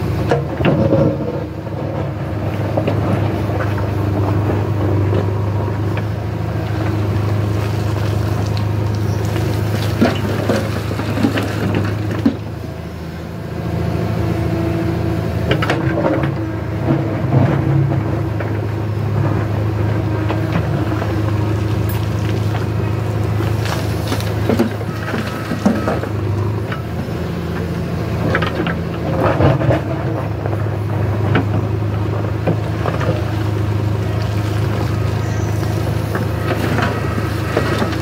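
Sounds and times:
diesel engine running under load: 0.0 - 38.0
soil and stones clattering: 6.7 - 12.6, 20.2 - 38.0
bucket knocking and scraping stones: 7.7 - 12.5, 21.7 - 26.0.

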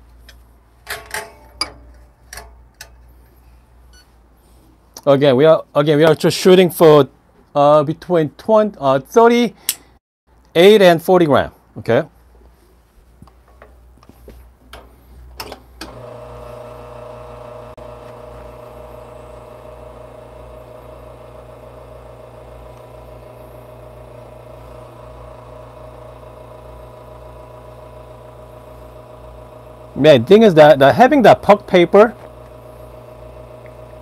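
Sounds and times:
espresso machine pump humming: 15.8 - 34.0.

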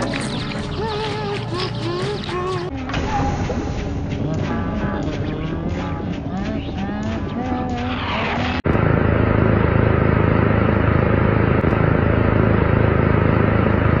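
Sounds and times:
music with wavering melody: 0.0 - 7.8
low hum: 0.0 - 14.0.

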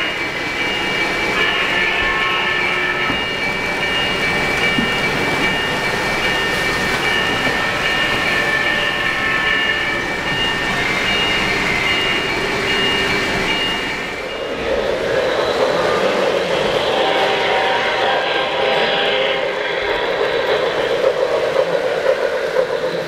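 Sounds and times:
model train rumbling on rails: 0.0 - 23.0.

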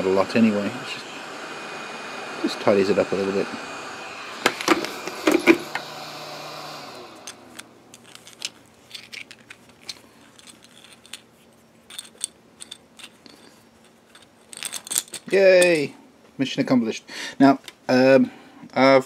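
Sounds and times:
hot air blower running: 0.0 - 7.9
plastic keyrings clicking: 7.9 - 11.2.

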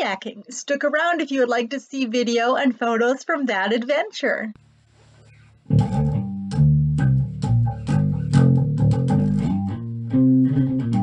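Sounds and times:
bass guitar line: 4.6 - 11.0
plucked guitar notes: 5.1 - 11.0.

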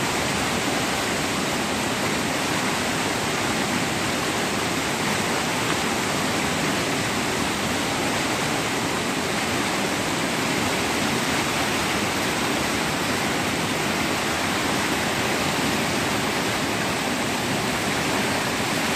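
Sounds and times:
river rushing over rapids: 0.0 - 18.9.

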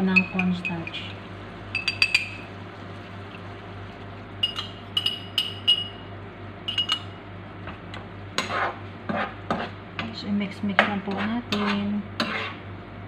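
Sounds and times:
glass clinking against metal spoon: 1.8 - 2.4, 4.4 - 6.0, 6.7 - 7.1.

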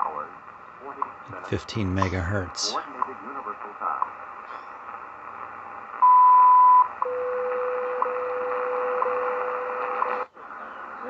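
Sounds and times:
radio static hiss: 0.0 - 5.6.

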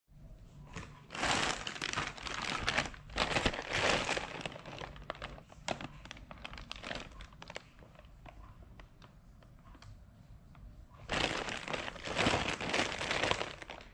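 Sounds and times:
plastic mailer bag crinkling: 1.1 - 8.4, 11.1 - 13.9.

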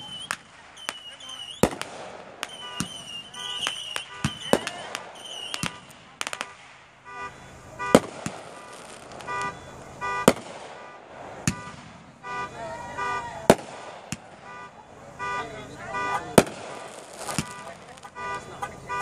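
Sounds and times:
fireworks banging: 0.0 - 19.0
short horn toots: 5.5 - 13.4, 14.4 - 19.0.

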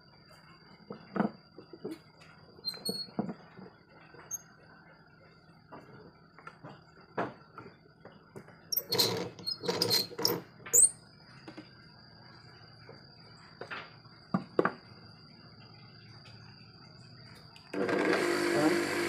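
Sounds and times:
sharp high squeak: 2.6 - 3.2, 8.7 - 11.0.

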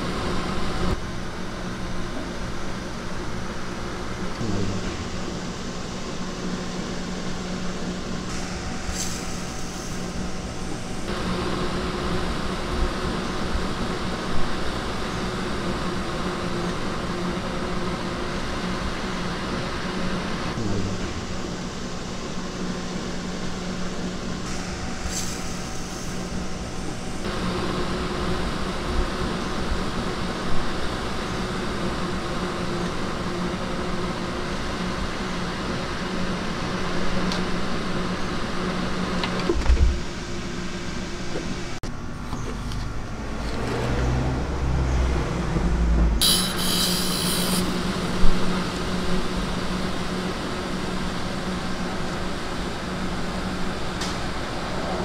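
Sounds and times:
cotton candy machine motor hum: 0.0 - 25.1, 45.3 - 55.0.

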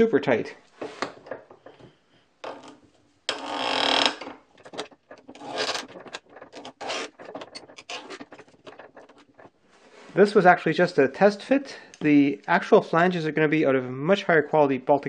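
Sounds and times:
plywood scraping against metal: 0.8 - 10.2.

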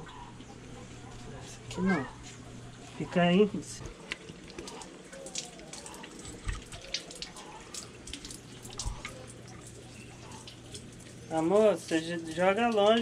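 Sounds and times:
splashes and drips: 3.8 - 13.0
tap water running into sink: 4.2 - 13.0.

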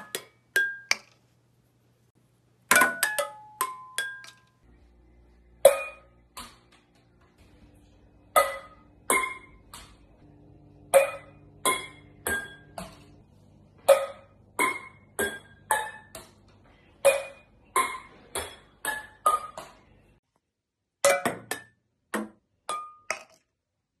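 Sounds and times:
ping pong ball bouncing on pans: 0.0 - 1.2, 2.7 - 4.6, 5.6 - 6.8, 8.3 - 10.2, 10.9 - 13.2, 13.8 - 20.0, 21.0 - 23.5.

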